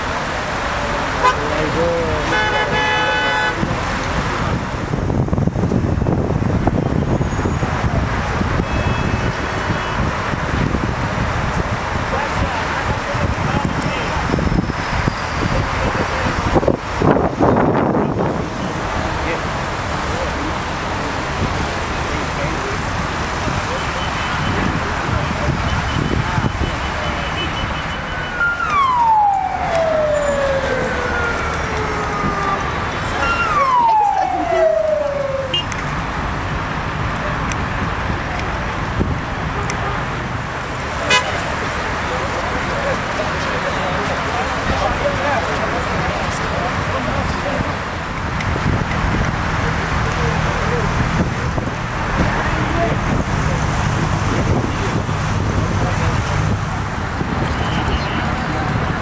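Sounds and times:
slow road traffic: 0:00.0 - 0:59.0
wind rumbling on microphone: 0:03.6 - 0:20.0, 0:28.4 - 0:39.6, 0:44.1 - 0:49.7, 0:50.4 - 0:59.0
siren wailing: 0:28.0 - 0:35.7.

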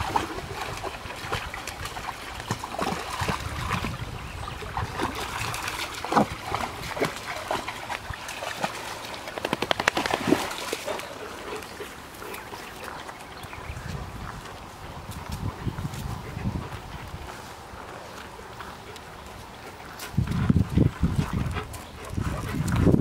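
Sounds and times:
dog splashing through water: 0:00.0 - 0:14.4.

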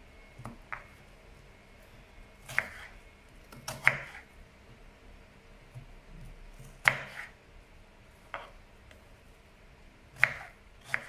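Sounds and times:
knife striking chopping board: 0:06.8 - 0:07.3.

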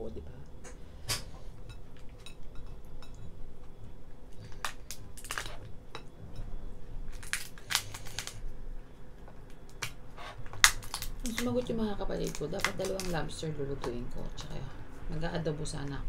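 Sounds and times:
lobster shell cracking: 0:04.3 - 0:05.6, 0:07.1 - 0:08.5, 0:09.5 - 0:13.3.

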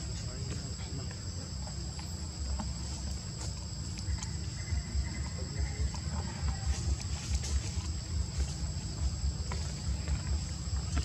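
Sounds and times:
insects droning: 0:00.0 - 0:11.0.

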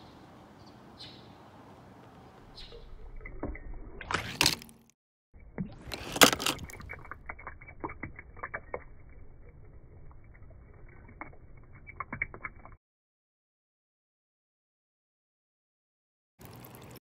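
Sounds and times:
water dripping: 0:02.4 - 0:04.1, 0:05.4 - 0:12.8, 0:16.4 - 0:17.0
water trickling: 0:02.4 - 0:04.1, 0:05.4 - 0:12.8, 0:16.4 - 0:17.0.

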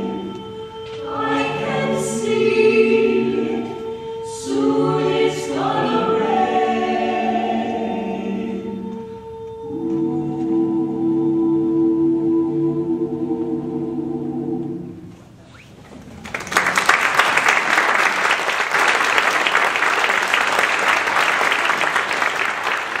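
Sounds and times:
vocal ensemble singing a chord: 0:00.0 - 0:15.2
audience applause: 0:16.1 - 0:23.0.

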